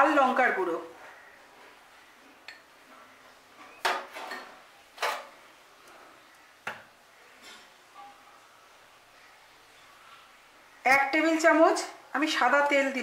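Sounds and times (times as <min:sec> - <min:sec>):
kitchen utensils clinking: 0:03.7 - 0:05.4.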